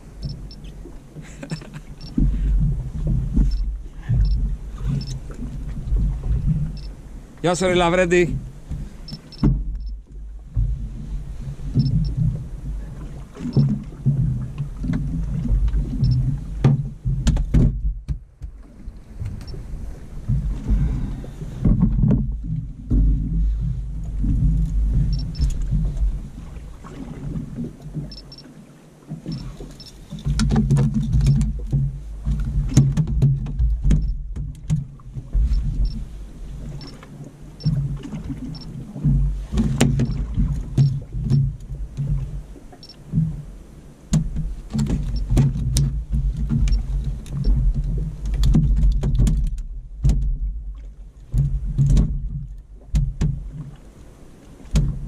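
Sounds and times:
rumble of water and wind: 0.0s - 55.0s
knocks of fish on deck: 13.6s - 18.6s, 30.3s - 35.6s, 44.1s - 46.8s, 47.5s - 50.5s, 51.3s - 53.4s, 54.7s - 55.0s.

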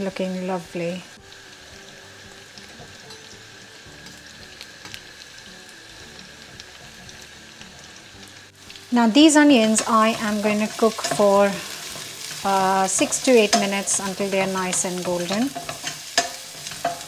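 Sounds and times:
deep-frying sizzle and crackles: 0.0s - 17.0s
faint music: 0.0s - 17.0s.

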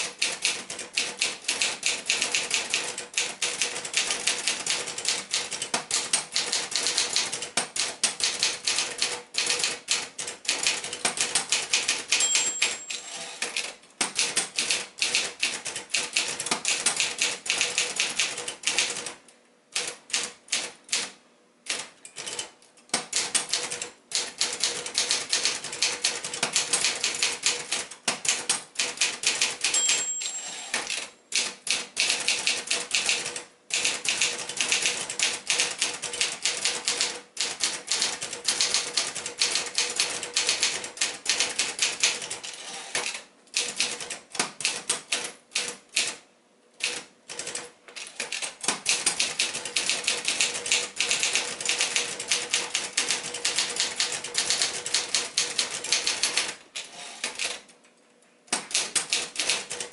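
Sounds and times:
typewriter carriage return: 0.0s - 19.2s, 21.7s - 46.2s, 46.8s - 57.7s, 58.5s - 59.9s
typewriter typing: 0.0s - 46.2s, 46.8s - 57.7s, 58.5s - 59.9s
typewriter margin bell ding: 12.1s - 13.4s, 29.6s - 31.0s.

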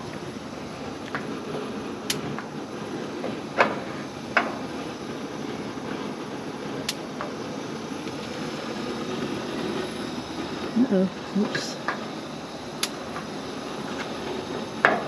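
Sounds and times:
gas burners rushing: 0.0s - 15.0s
igniter snapping: 6.8s - 7.3s, 12.8s - 13.3s.

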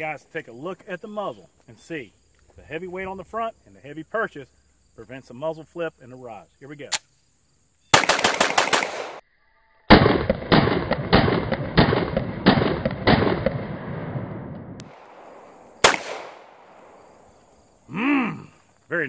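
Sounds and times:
pistol shots: 7.9s - 9.2s, 9.9s - 17.3s.

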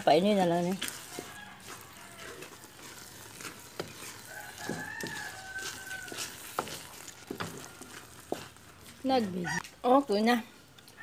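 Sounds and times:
wooden spatula scraping a wok: 0.0s - 9.6s
rooster crowing: 1.0s - 2.6s, 4.1s - 6.8s.

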